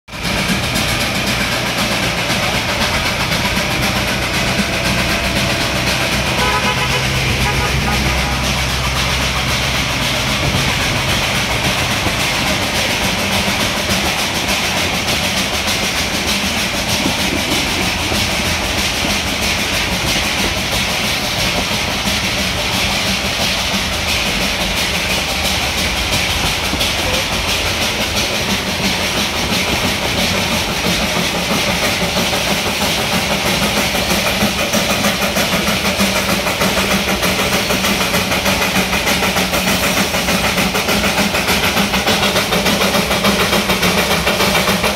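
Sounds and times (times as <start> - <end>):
steam hissing: 0.1 - 44.9
train wheels clattering on rails: 0.1 - 44.9.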